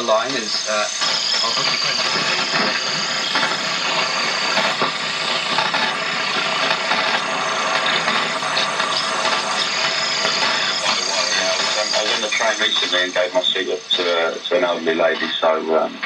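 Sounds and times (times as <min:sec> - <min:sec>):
stepper motor pulsing: 0:00.0 - 0:15.6
medium-wave radio reception: 0:00.0 - 0:16.0.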